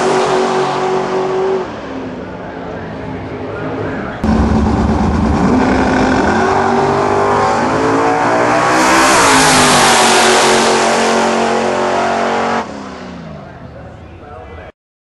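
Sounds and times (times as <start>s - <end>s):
drag car accelerating past: 4.2s - 13.2s.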